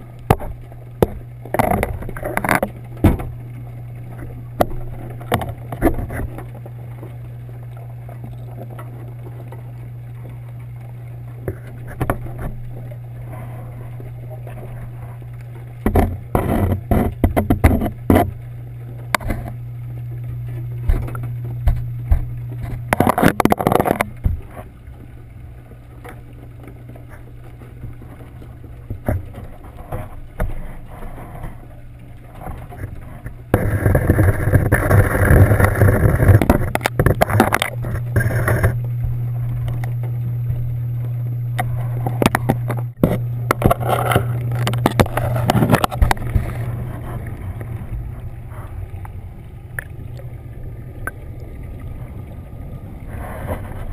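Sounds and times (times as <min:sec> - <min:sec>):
rushing water noise: 0:00.0 - 0:53.9
underwater machinery hum: 0:00.0 - 0:53.9
clicking and knocking: 0:15.8 - 0:18.4.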